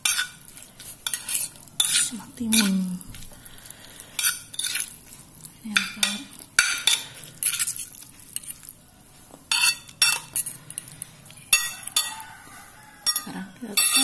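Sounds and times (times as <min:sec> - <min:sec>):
cutlery scraping ceramic plate: 0:00.0 - 0:02.8, 0:04.2 - 0:04.9, 0:09.5 - 0:12.2, 0:13.0 - 0:14.0.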